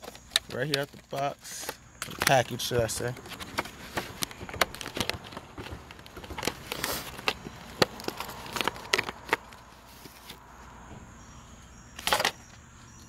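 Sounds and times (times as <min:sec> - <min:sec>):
packaging clicks and rustles: 0:00.0 - 0:10.4, 0:12.0 - 0:12.5.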